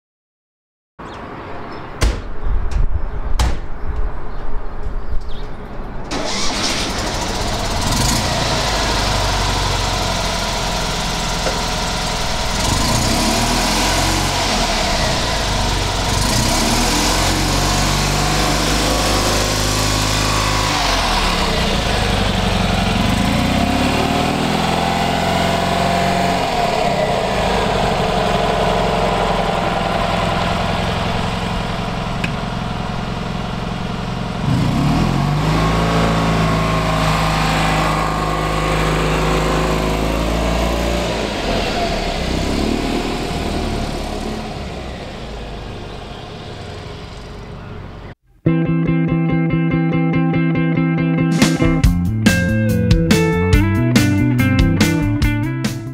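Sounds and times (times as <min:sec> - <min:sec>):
small car engine revving: 0:06.1 - 0:48.2.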